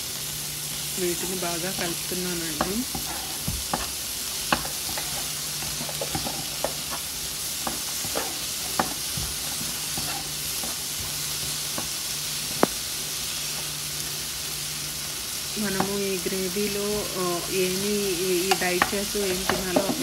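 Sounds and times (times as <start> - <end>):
food sizzling in a frying pan: 0.0 - 20.0
wooden spatula stirring: 1.2 - 7.0
spatula tapping a pan: 1.8 - 7.0, 7.6 - 10.8, 18.5 - 20.0.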